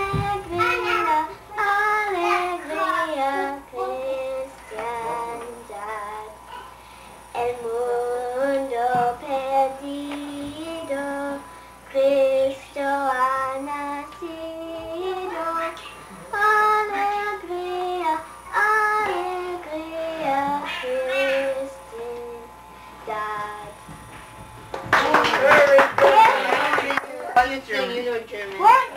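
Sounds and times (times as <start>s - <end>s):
children singing: 0.0s - 6.7s, 12.0s - 23.7s.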